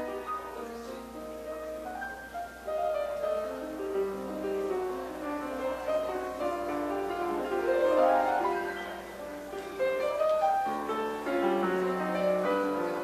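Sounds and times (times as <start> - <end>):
piano background music: 0.0 - 13.0.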